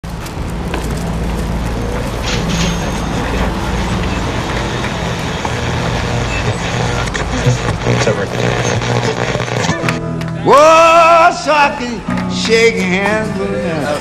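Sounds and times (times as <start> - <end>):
vehicle engine running: 0.0 - 10.0
street noise: 0.0 - 14.0
people talking: 2.8 - 9.9.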